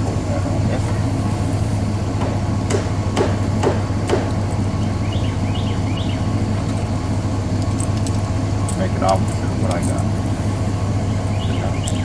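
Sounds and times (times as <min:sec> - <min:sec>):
engine idling hum: 0:00.0 - 0:12.0
sharp knocks: 0:02.2 - 0:04.4.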